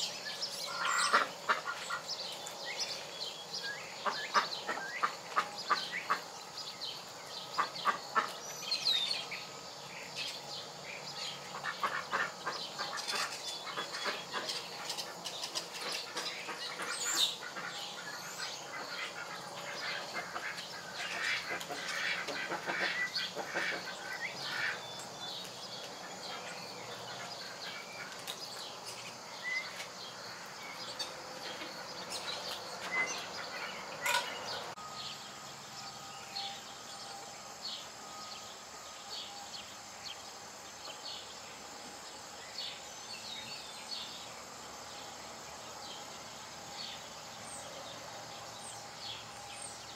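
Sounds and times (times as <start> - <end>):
chickens clucking and chirping: 0.0 - 35.8.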